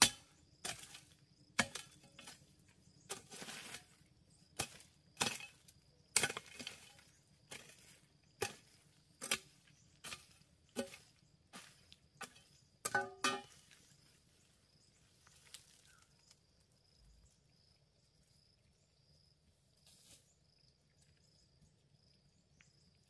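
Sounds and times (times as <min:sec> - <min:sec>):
hand tool chopping: 0:01.6 - 0:02.4, 0:06.2 - 0:06.9, 0:08.4 - 0:11.1, 0:12.2 - 0:13.5
scraping rustle: 0:03.1 - 0:04.0.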